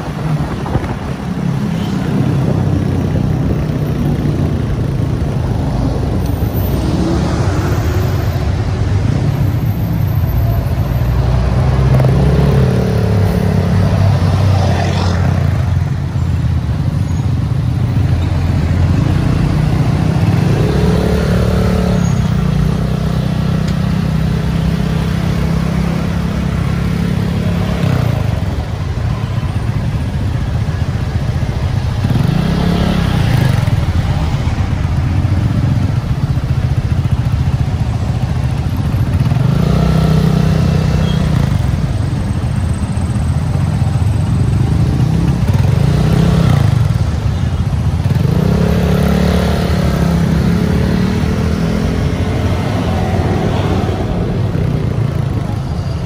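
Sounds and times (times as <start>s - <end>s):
street noise: 0.0s - 56.0s
motorbike engine revving: 44.6s - 55.6s.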